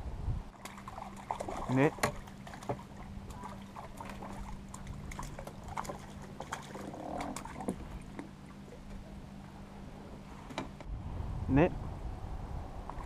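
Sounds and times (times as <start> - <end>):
steady low hum: 0.0 - 13.0
fish splashing: 0.6 - 8.1.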